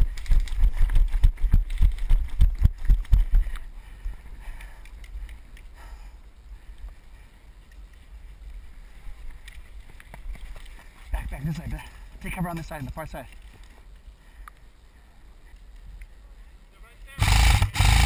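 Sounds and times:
running footsteps on dirt: 0:00.0 - 0:16.4
gear jostling: 0:06.7 - 0:14.1.

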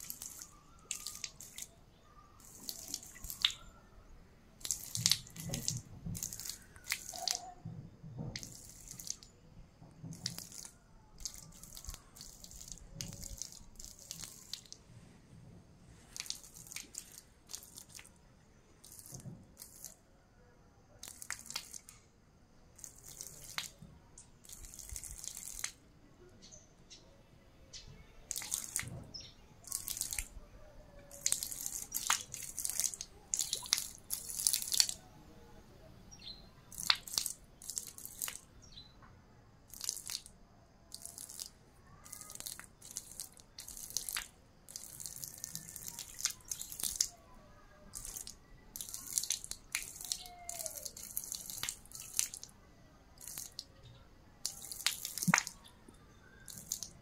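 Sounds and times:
water splashing onto concrete: 0:00.0 - 0:01.8, 0:02.4 - 0:03.8, 0:04.6 - 0:07.6, 0:08.2 - 0:09.3, 0:10.0 - 0:14.8, 0:16.1 - 0:18.2, 0:18.8 - 0:20.0, 0:21.0 - 0:22.0, 0:22.8 - 0:25.8, 0:28.2 - 0:30.4, 0:31.0 - 0:35.1, 0:36.2 - 0:38.8, 0:39.7 - 0:40.3, 0:40.9 - 0:47.2, 0:47.8 - 0:52.6, 0:53.2 - 0:53.7, 0:54.4 - 0:55.7, 0:56.3 - 0:57.0.

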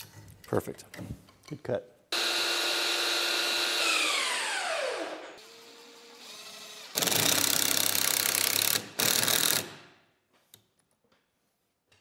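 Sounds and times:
impact driver driving screws into wood: 0:06.8 - 0:09.8.

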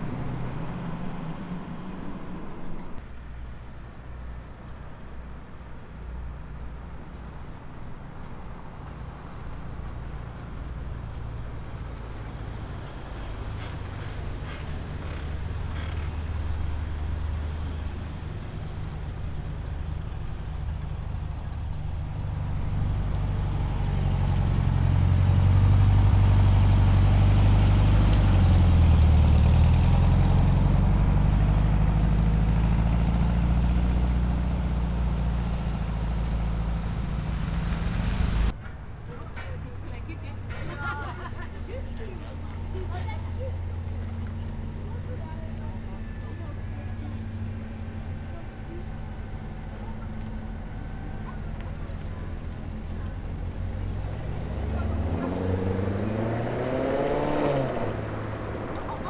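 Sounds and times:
car engine running: 0:11.4 - 0:38.5, 0:42.5 - 0:57.0.

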